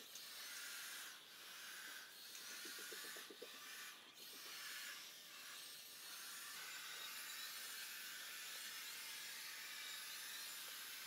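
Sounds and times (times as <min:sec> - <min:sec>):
robot vacuum hissing on tiles: 0:00.0 - 0:08.5.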